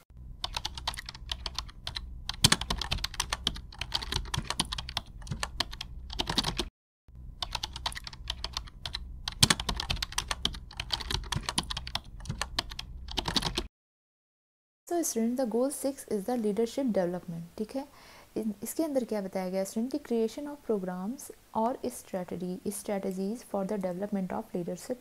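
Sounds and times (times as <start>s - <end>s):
rapid clicking and tapping: 0.4s - 6.7s, 7.4s - 13.7s.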